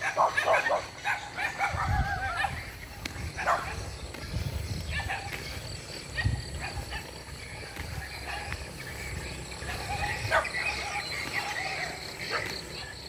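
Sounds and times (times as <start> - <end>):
dog barking: 0.0 - 2.7, 3.3 - 4.0, 4.9 - 5.5, 6.1 - 7.1, 8.2 - 8.6, 9.7 - 12.6
wind rumble on microphone: 1.0 - 13.0.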